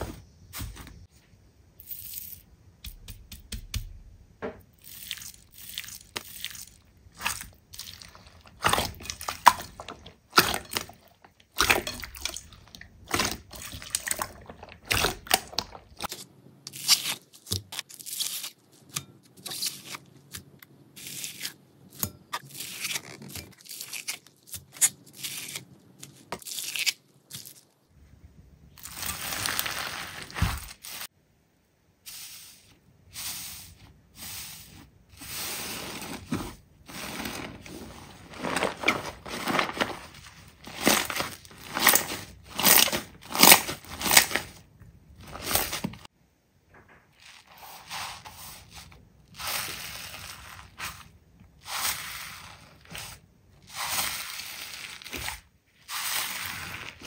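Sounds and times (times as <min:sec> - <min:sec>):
rustling: 0:28.8 - 0:31.1, 0:32.1 - 0:44.6.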